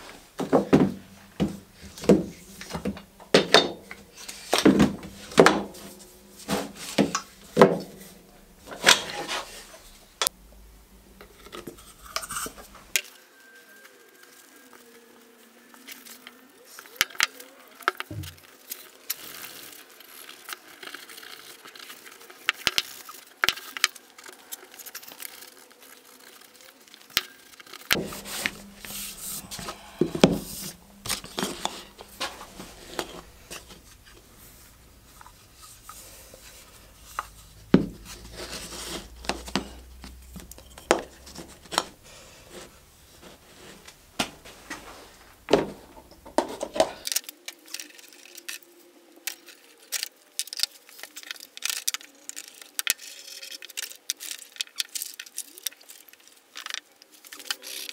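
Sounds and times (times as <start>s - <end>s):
low hum: 1.0s - 13.0s, 28.0s - 46.4s.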